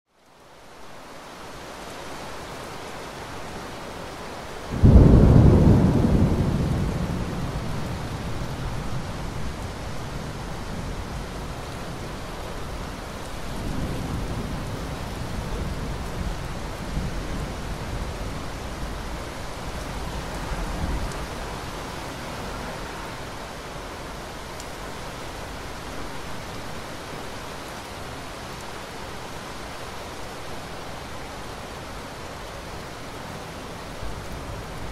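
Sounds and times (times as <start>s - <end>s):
rain hissing: 0.4s - 34.9s
thunder rumbling: 4.7s - 11.6s.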